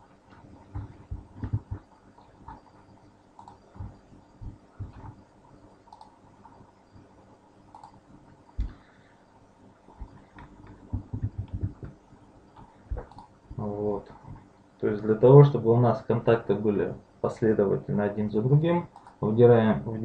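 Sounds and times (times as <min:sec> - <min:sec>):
computer mouse and keyboard clicks: 0:00.3 - 0:02.8, 0:03.4 - 0:03.9, 0:05.8 - 0:06.6, 0:07.7 - 0:08.0, 0:12.6 - 0:13.3, 0:18.9 - 0:19.2.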